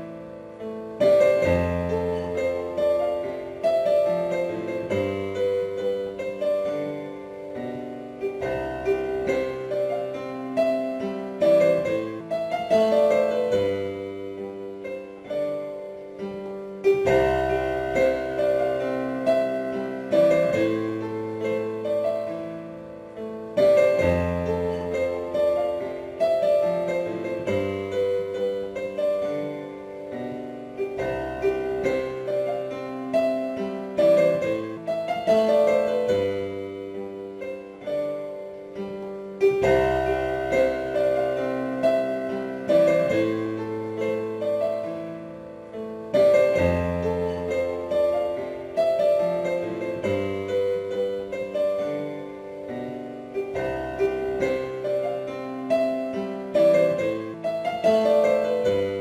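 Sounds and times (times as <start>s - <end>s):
slow piano music: 0.0s - 59.0s.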